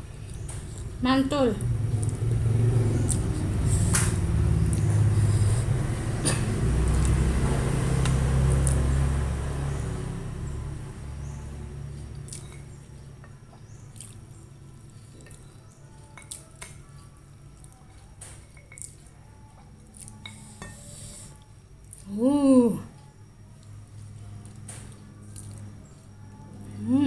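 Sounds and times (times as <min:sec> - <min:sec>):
fingers squishing food: 0:13.9 - 0:19.1.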